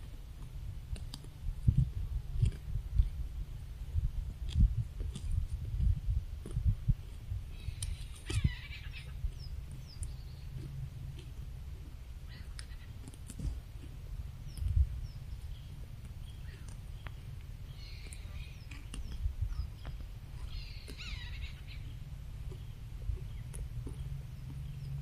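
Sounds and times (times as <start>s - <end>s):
low rumble: 0.0s - 25.0s
birds chirping: 7.5s - 11.4s, 12.2s - 25.0s.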